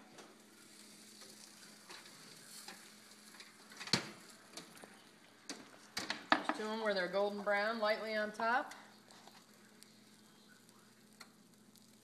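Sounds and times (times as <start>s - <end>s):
faint hiss: 8.7s - 12.0s.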